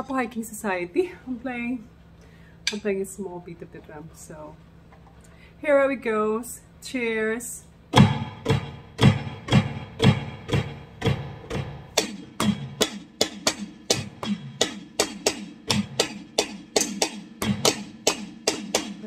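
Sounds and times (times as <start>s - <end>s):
drum set steady beat: 8.0s - 19.0s.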